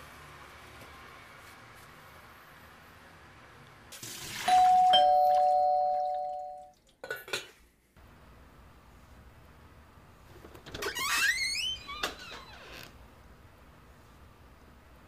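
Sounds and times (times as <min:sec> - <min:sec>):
two-tone doorbell chime: 0:04.5 - 0:06.7.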